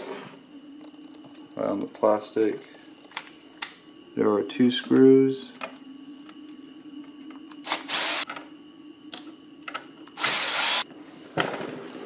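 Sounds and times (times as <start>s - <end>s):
cordless drill motor: 7.6s - 8.3s, 10.1s - 10.9s.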